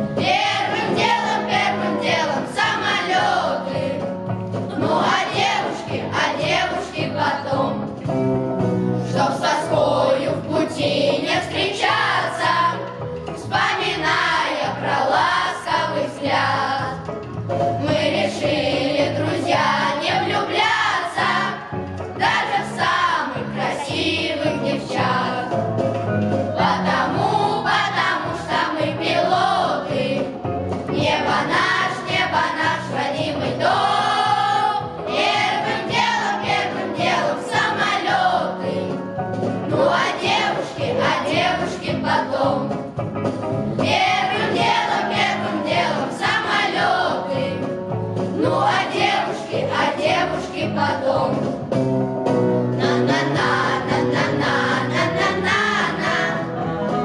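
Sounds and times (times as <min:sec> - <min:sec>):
boys' choir singing in unison: 0:00.2 - 0:04.1, 0:04.7 - 0:07.9, 0:09.1 - 0:12.8, 0:13.4 - 0:17.0, 0:17.8 - 0:25.6, 0:26.5 - 0:39.0, 0:39.7 - 0:42.8, 0:43.8 - 0:47.7, 0:48.3 - 0:51.5, 0:52.8 - 0:57.0.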